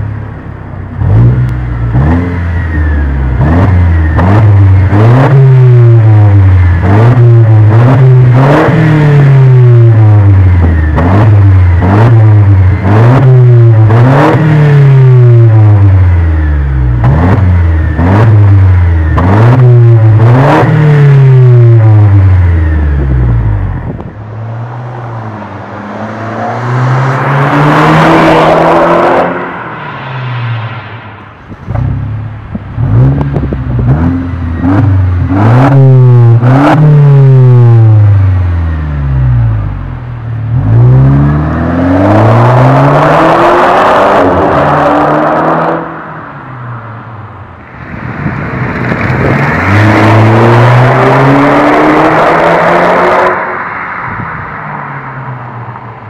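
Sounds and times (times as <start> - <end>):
car engine revving: 0.9 - 55.8
car accelerating past: 24.4 - 32.2
exhaust cracks: 29.5 - 37.0, 47.6 - 51.5.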